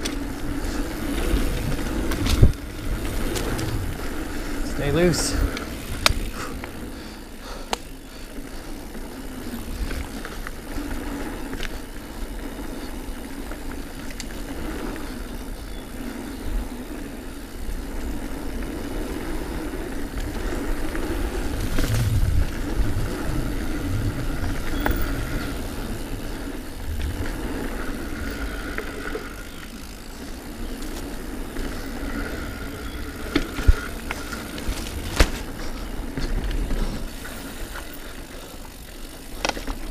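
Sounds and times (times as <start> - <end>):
bike rattle: 0.0 - 39.9
bike tyre noise on dirt: 0.0 - 39.9
deep rumble: 21.1 - 29.0.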